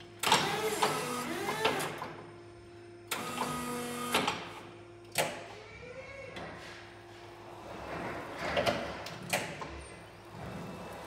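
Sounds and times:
hydraulic pump motor whirring: 0.0s - 2.2s, 3.1s - 5.6s.

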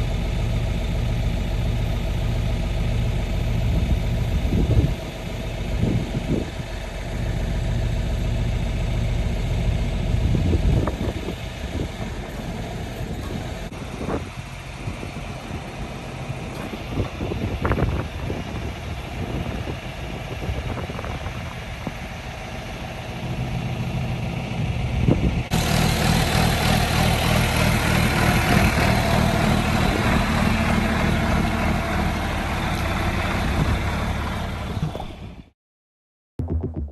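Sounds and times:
tractor diesel engine idling: 0.0s - 35.5s
engine knocks: 9.8s - 22.0s, 24.6s - 35.5s.

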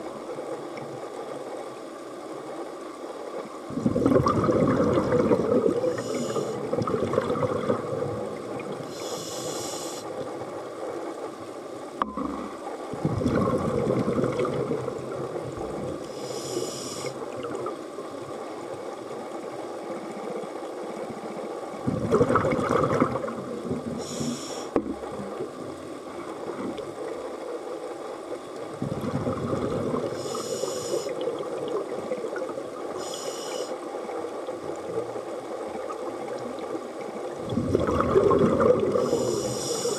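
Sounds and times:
exhaust bubbles rushing: 3.7s - 5.8s, 6.7s - 8.3s, 12.1s - 15.8s, 21.9s - 23.9s, 28.8s - 30.2s, 37.4s - 39.1s
regulator hiss on inhale: 5.8s - 6.7s, 8.9s - 10.2s, 16.0s - 17.2s, 24.0s - 24.8s, 30.0s - 31.3s, 32.9s - 33.9s, 38.9s - 39.9s.

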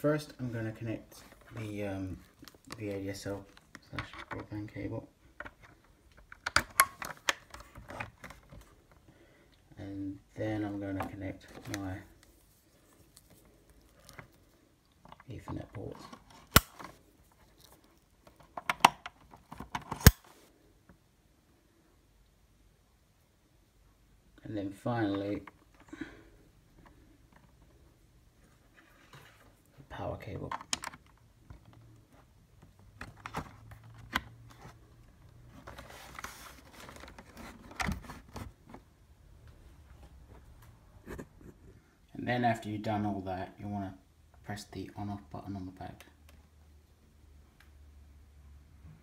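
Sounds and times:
cables rustling: 10.7s - 20.1s.

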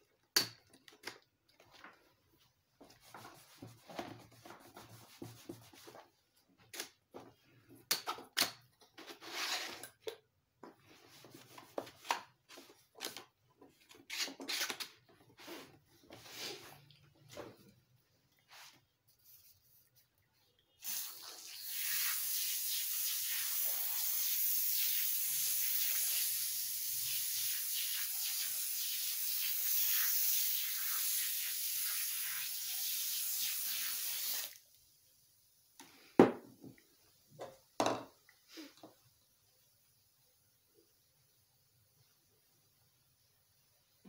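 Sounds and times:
aerosol spraying hiss: 20.8s - 34.5s.

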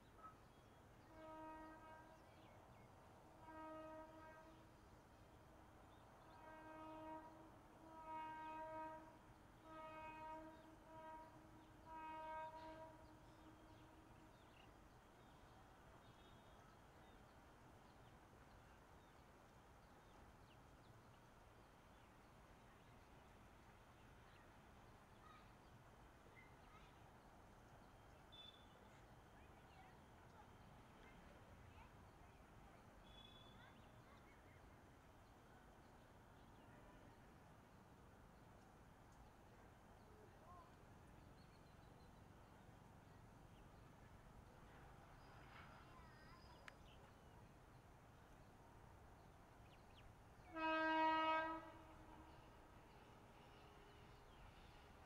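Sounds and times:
train horn: 1.0s - 4.8s, 5.9s - 14.7s, 33.0s - 33.8s, 50.4s - 55.0s
faint bird chirps: 27.9s - 30.0s, 33.0s - 34.4s, 45.1s - 47.2s.

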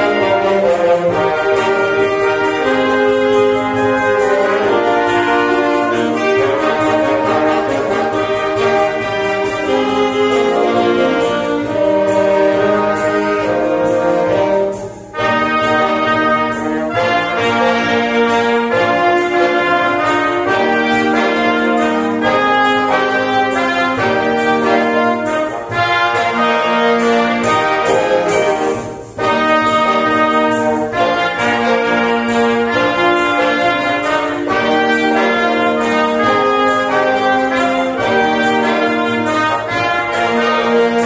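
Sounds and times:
wind band playing a hymn: 0.0s - 41.0s.

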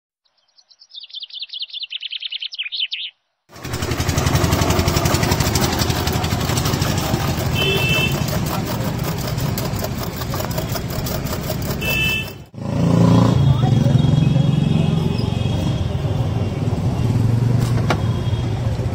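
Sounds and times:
birds chirping: 0.2s - 3.4s, 13.3s - 18.4s.

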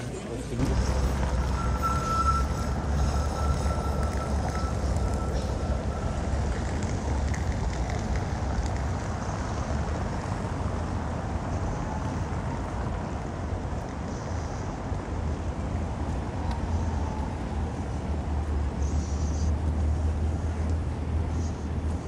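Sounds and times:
low traffic rumble: 0.0s - 22.0s
faint high tone: 0.7s - 6.8s.

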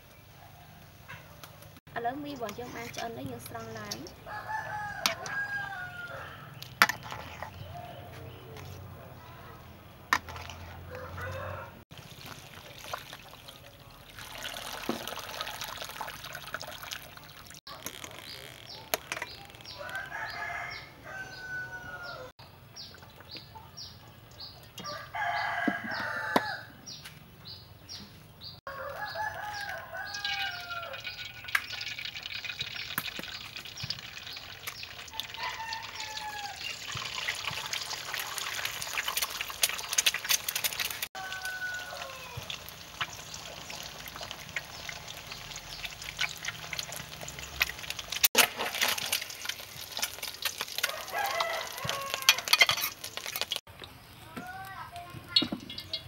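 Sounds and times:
roosters crowing: 4.2s - 8.5s, 10.6s - 11.8s, 18.7s - 22.4s, 24.8s - 26.9s, 28.7s - 31.5s, 35.1s - 37.6s, 41.1s - 42.8s, 49.8s - 53.5s
oil sizzling in a wok: 28.8s - 53.6s.

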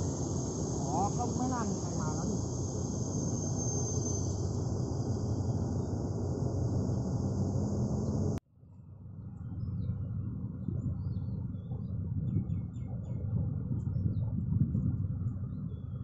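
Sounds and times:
diesel locomotive idling: 0.0s - 8.4s
high hiss: 0.0s - 8.4s.

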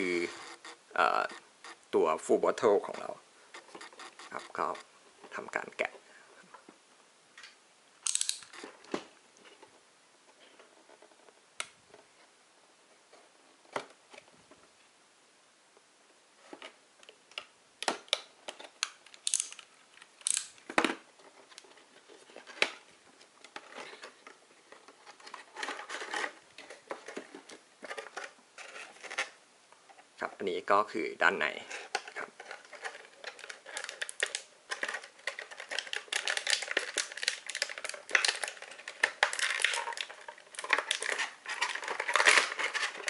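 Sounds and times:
plastic blister tray crinkling: 31.5s - 43.0s.

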